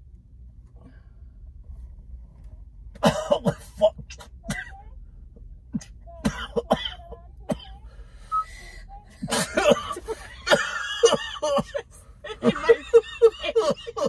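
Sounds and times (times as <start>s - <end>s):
man clearing his throat: 3.0s - 4.7s
man coughing: 3.0s - 4.7s, 5.7s - 7.7s, 9.2s - 14.0s.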